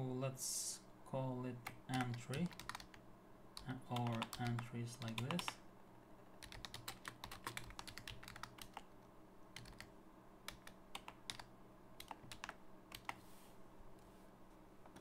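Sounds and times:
keyboard typing: 0:01.6 - 0:03.0, 0:03.6 - 0:05.6, 0:06.3 - 0:08.9, 0:09.6 - 0:09.9, 0:10.5 - 0:13.2.

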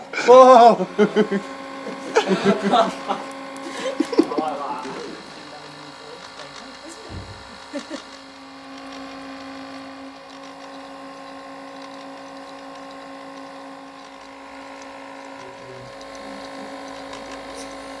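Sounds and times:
electric motor hum: 0:00.0 - 0:18.0.

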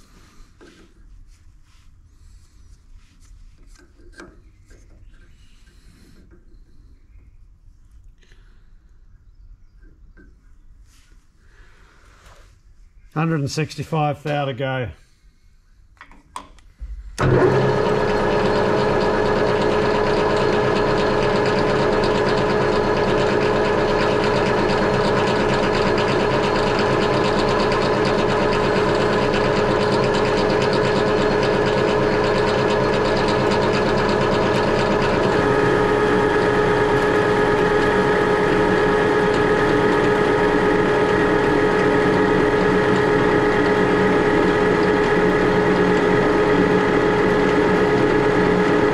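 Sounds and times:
metal lathe running: 0:17.2 - 0:48.9.

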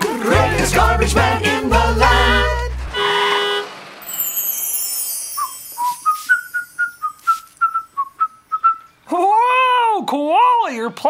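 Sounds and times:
high sparkle effect: 0:03.6 - 0:07.3
person whistling tune: 0:05.2 - 0:09.0.

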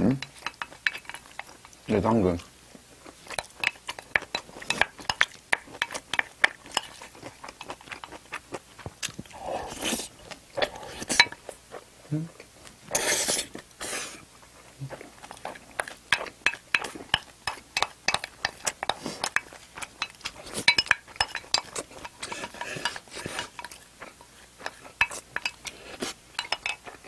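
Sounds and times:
chewing and mouth smacks: 0:00.2 - 0:12.8, 0:14.3 - 0:27.0
metal chopsticks clinking on dishes: 0:26.4 - 0:27.0.

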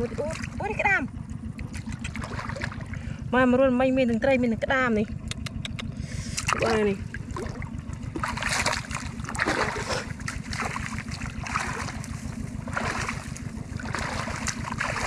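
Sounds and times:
steady low rumble: 0:00.0 - 0:15.0
water splashing and rushing: 0:01.7 - 0:03.1, 0:06.4 - 0:15.0.

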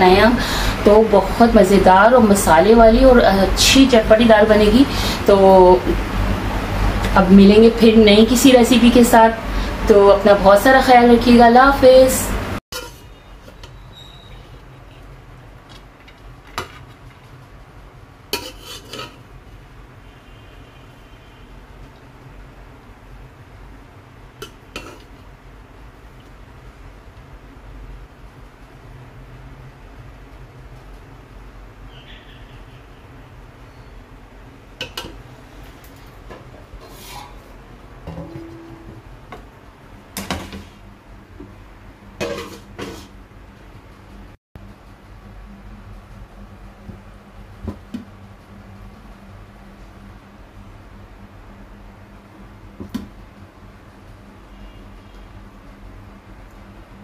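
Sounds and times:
pot scraping plate: 0:12.7 - 0:14.6, 0:18.3 - 0:19.3, 0:24.4 - 0:25.2, 0:36.8 - 0:38.9, 0:42.2 - 0:43.2
low steady hum: 0:14.4 - 0:57.0.

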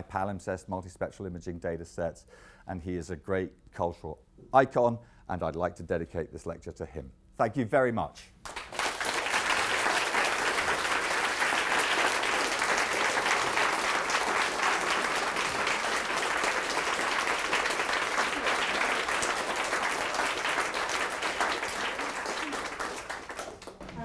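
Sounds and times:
audience applauding: 0:08.4 - 0:24.0.

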